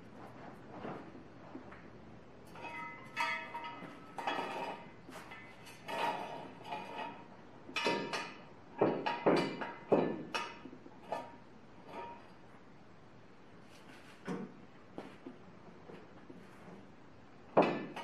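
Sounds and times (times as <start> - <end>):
metal jack stand clinks and scrapes: 2.5 - 8.4.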